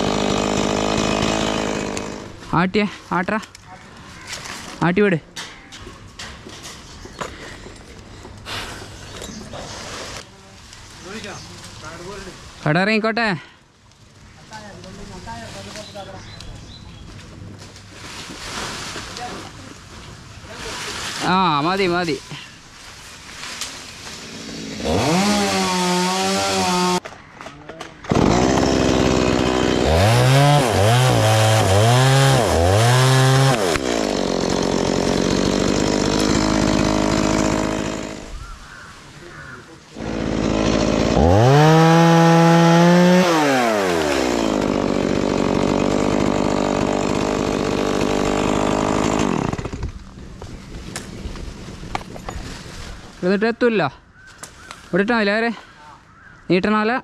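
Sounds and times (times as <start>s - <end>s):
chainsaw revving and cutting branches: 0.0s - 3.3s, 23.3s - 27.0s, 28.0s - 38.4s, 39.9s - 53.3s.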